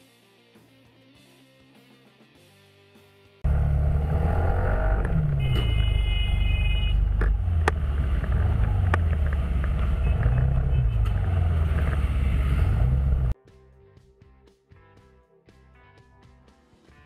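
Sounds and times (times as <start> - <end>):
vehicle engine rumbling: 3.4 - 13.4.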